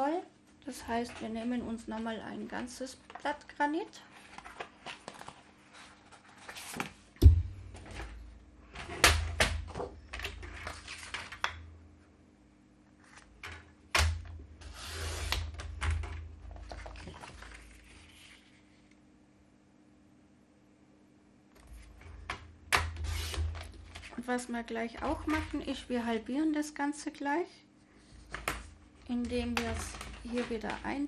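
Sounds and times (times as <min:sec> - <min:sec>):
paper rustling and sliding: 0:04.1 - 0:07.1, 0:09.7 - 0:11.4, 0:14.6 - 0:15.7, 0:16.5 - 0:18.8, 0:23.0 - 0:24.3.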